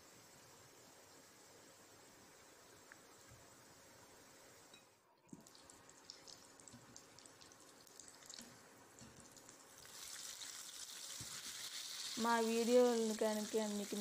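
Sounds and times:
food deep-frying in oil: 0.9s - 14.0s.

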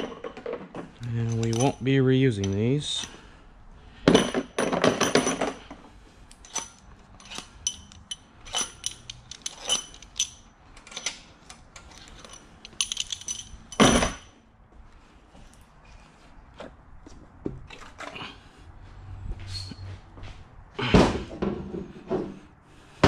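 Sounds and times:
metal bolts clinking: 0.0s - 3.2s, 6.3s - 14.4s.

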